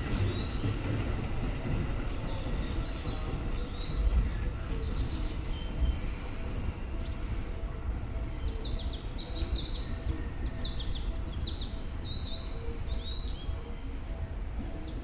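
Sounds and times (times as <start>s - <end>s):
small birds chirping: 0.0s - 1.2s
electric train rumbling: 0.0s - 15.0s.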